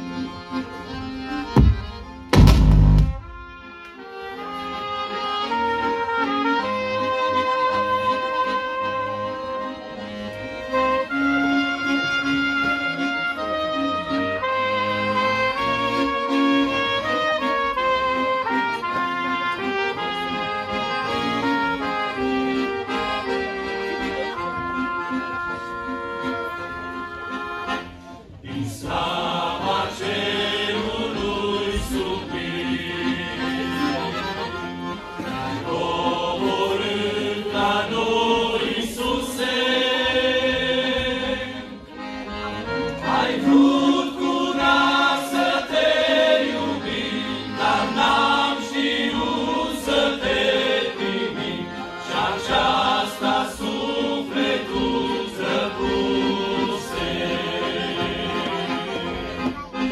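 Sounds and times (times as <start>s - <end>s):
accordion: 0.0s - 59.9s
men singing a hymn in parts: 28.4s - 33.6s, 35.6s - 41.7s, 43.0s - 59.0s.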